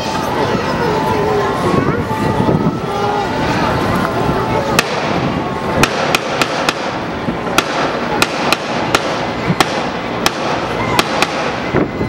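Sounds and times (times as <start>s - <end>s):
steady background noise: 0.0s - 12.0s
rifle shots: 5.8s - 7.0s, 7.6s - 11.6s.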